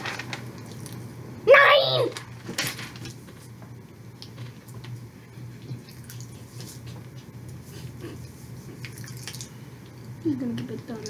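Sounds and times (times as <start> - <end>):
paper rustling: 0.0 - 0.7, 2.1 - 3.5
low steady hum: 0.0 - 11.0.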